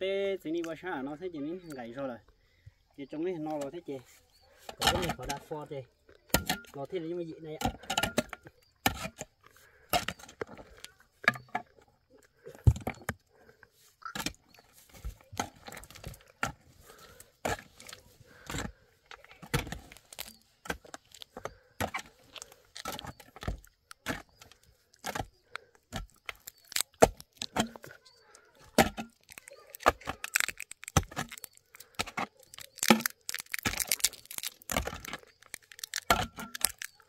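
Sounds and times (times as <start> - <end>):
hand tools striking rock: 4.7 - 5.5, 6.2 - 6.8, 7.5 - 10.6, 28.7 - 33.9, 35.9 - 37.0.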